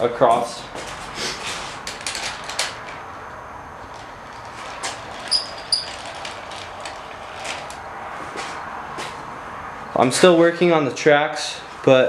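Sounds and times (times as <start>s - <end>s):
slider rolling on pipe tracks: 3.8s - 8.6s.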